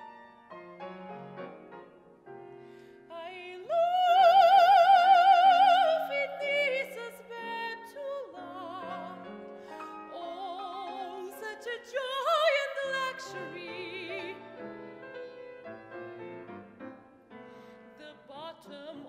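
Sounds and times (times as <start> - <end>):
piano accompaniment: 0.0 - 4.1, 5.0 - 19.0
woman singing: 3.1 - 9.4, 10.0 - 14.6, 17.9 - 19.0.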